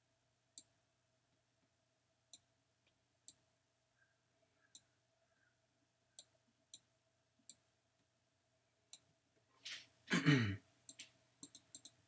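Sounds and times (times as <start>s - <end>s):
person sighing: 10.1s - 10.6s
computer mouse clicks: 10.9s - 12.0s.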